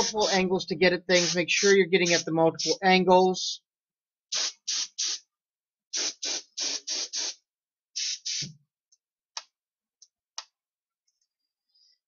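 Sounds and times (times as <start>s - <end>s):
spray gun hissing bursts: 0.0s - 0.4s, 1.0s - 2.8s, 4.3s - 5.2s, 6.0s - 7.4s, 8.0s - 8.5s.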